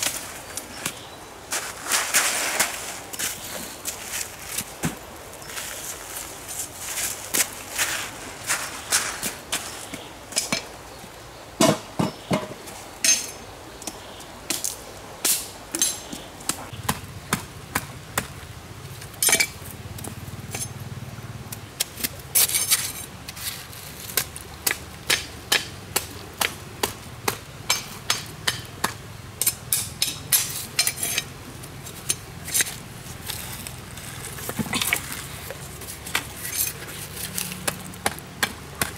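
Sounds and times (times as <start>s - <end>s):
blade knocking on wooden stakes: 24.1s - 31.2s, 34.4s - 38.9s.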